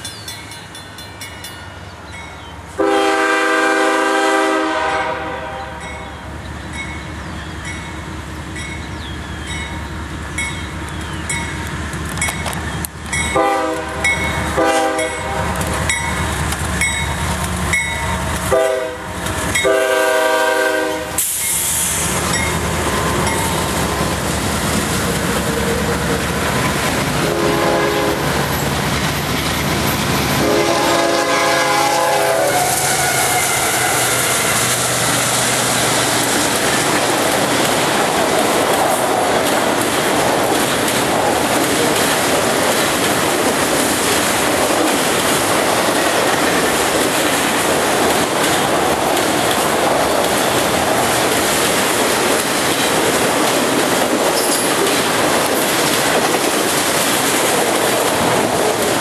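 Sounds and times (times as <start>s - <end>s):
train rumbling past: 0.0s - 59.0s
train air horn blasts: 2.8s - 5.8s, 13.3s - 15.6s, 18.5s - 22.0s, 27.2s - 28.3s, 30.4s - 34.8s
wheels clacking on rail joints: 6.7s - 32.1s, 33.6s - 59.0s.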